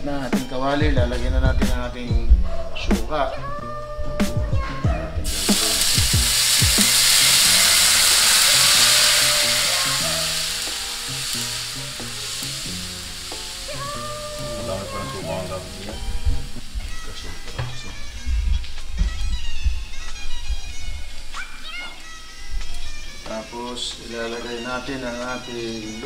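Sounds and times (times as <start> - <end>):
liquid sizzling in hot wok: 5.2 - 17.6.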